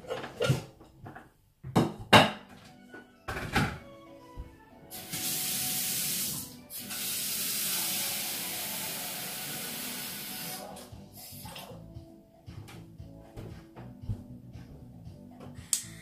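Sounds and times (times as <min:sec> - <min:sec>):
water running hard: 0:04.9 - 0:11.6.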